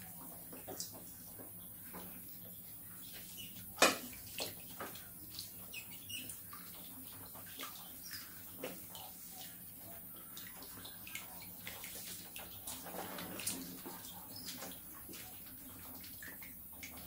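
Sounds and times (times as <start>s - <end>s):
water splashing and sloshing: 0.0s - 17.0s
rats chirping: 5.7s - 6.3s.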